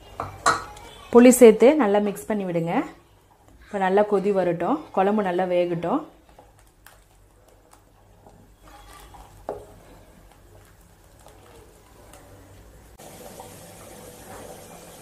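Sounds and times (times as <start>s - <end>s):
spoon knocking pot: 0.2s - 0.8s
wooden spoon stirring curry: 3.2s - 12.9s
curry bubbling: 3.2s - 15.0s.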